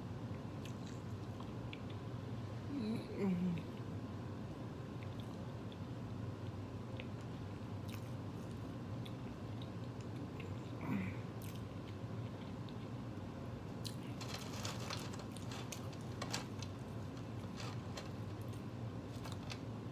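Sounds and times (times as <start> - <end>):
steady low hum: 0.0 - 19.9
person chewing: 7.8 - 10.8, 11.4 - 13.0.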